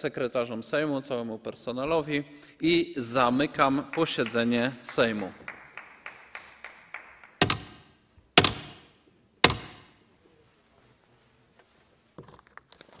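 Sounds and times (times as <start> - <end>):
staff striking floor with echo: 3.6 - 10.0.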